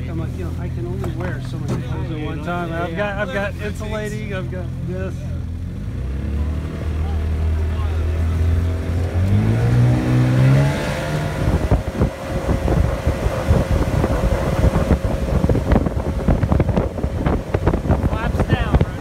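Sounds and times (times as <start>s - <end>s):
outboard motor revving: 0.0s - 19.0s
wind buffeting microphone: 8.6s - 19.0s.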